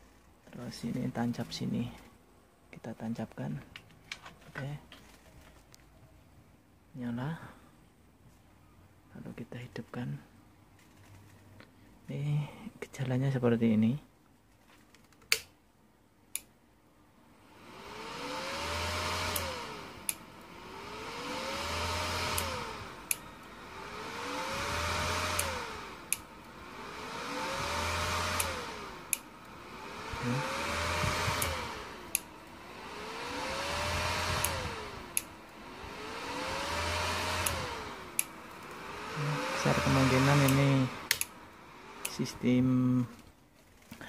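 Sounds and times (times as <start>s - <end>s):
welder fan whirring and humming: 17.3s - 43.9s
welder switch click: 19.3s - 20.2s, 24.7s - 26.3s, 28.3s - 29.3s, 34.2s - 35.3s, 40.3s - 41.4s.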